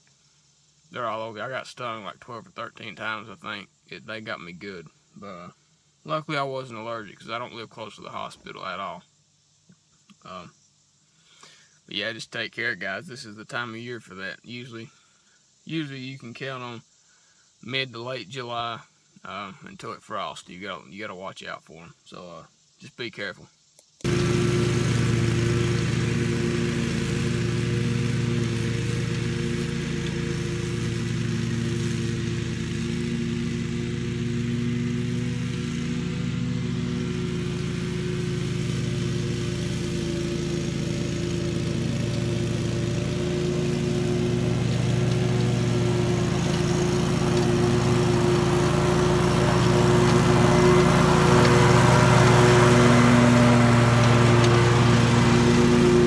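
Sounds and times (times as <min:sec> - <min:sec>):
lawn mower engine cutting grass: 0:24.0 - 0:56.0.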